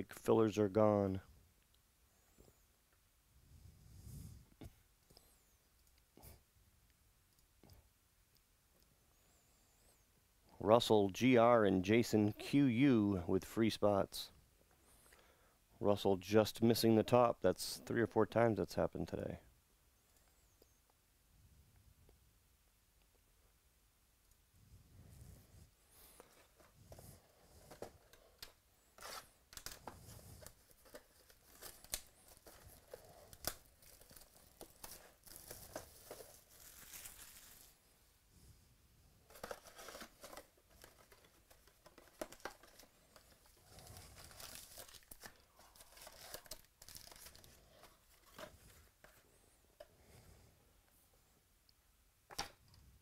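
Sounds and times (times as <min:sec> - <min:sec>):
plastic wrapping tearing: 0:29.0 - 0:37.8, 0:39.3 - 0:48.4
card packs tapping and rustling: 0:29.5 - 0:37.7, 0:39.3 - 0:49.2.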